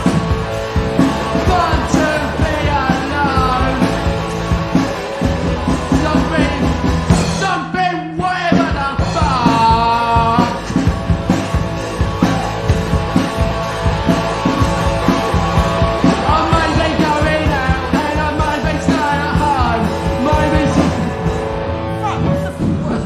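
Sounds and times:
electric guitar: 0.0 - 7.4, 8.5 - 23.0
bass guitar: 0.0 - 23.0
driving drum beat: 0.0 - 23.0
person singing: 1.0 - 4.4, 5.6 - 10.9, 14.4 - 23.0.

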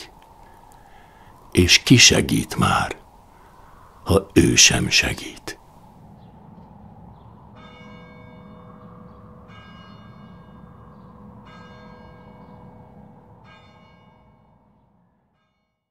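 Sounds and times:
low background rumble: 0.0 - 14.9
church bell tolling: 7.6 - 15.8.

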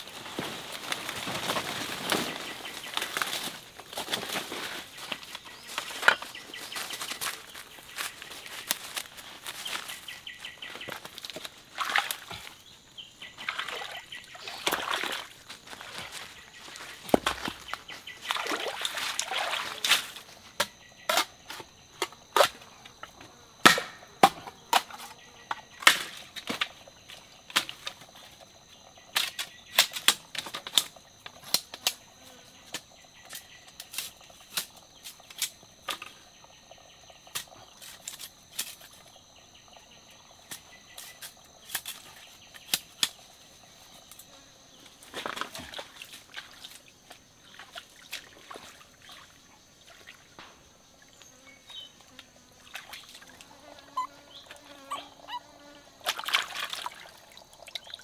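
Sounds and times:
water and stones shifted by hand: 0.0 - 12.6, 13.4 - 20.5, 45.0 - 50.2, 56.0 - 58.0
high insect drone: 0.0 - 58.0
knife chopping wood: 23.6 - 24.9.

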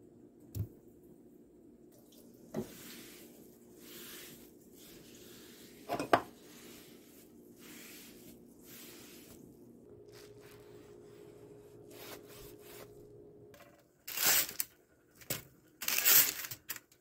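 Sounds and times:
hand wiping countertop: 2.4 - 13.3.

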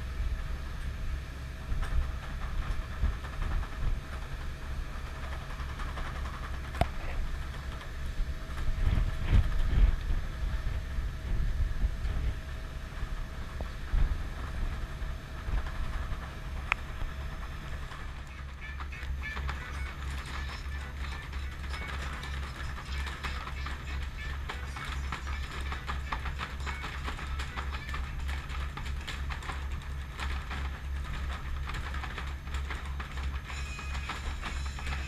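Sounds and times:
ship engines rumbling: 0.0 - 35.0
wind buffeting microphone: 6.0 - 18.2.

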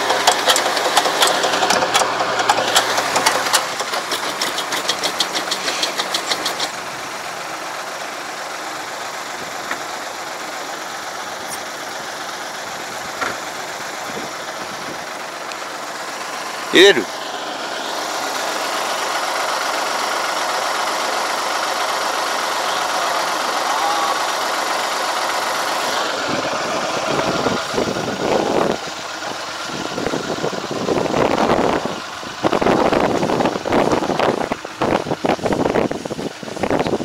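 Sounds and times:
tractor diesel engine running: 0.0 - 37.0
wind buffeting microphone: 26.2 - 28.9, 29.7 - 37.0.

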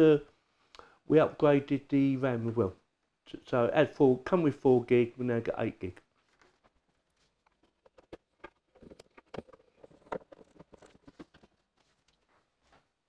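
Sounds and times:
rustling: 6.0 - 13.0.

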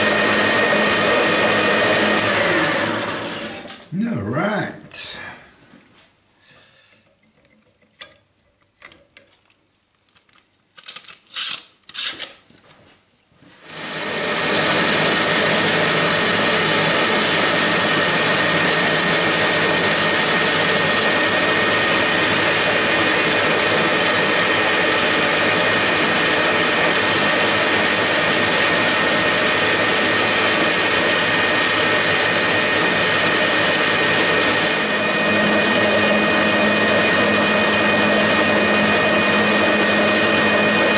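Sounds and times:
lathe motor whine: 0.0 - 3.8, 13.6 - 40.9
file on spinning workpiece hum: 13.7 - 40.9.

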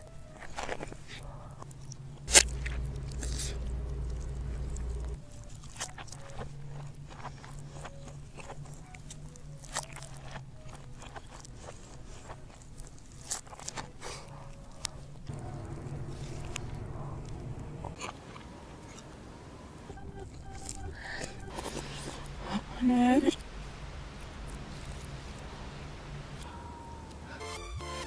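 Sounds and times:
reversed chewing noises: 0.0 - 28.0
low rumble: 2.3 - 5.2, 15.3 - 18.7.

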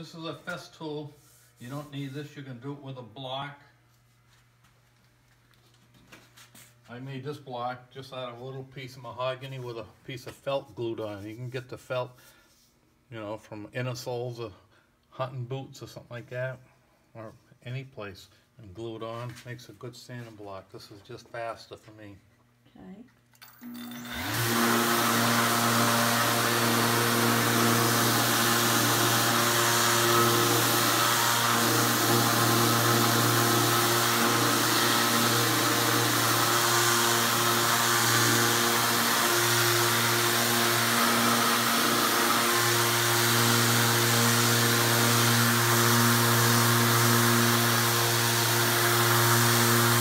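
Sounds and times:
orbital sander sanding wood: 24.1 - 50.0.

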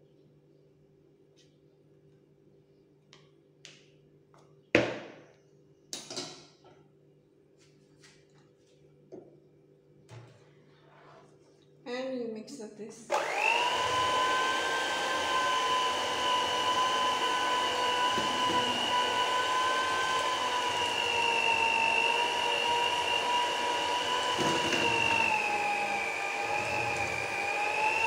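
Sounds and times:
electric hand mixer whining: 13.1 - 28.0.

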